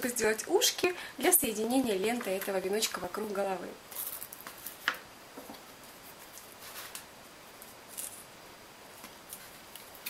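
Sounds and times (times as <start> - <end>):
tape rustling: 3.9 - 5.0, 5.8 - 8.2.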